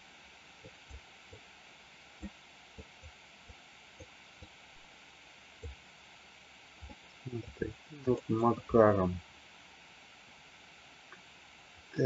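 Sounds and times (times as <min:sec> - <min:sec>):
faint microphone hiss: 0:00.0 - 0:12.0
soft low thumps: 0:06.8 - 0:09.1.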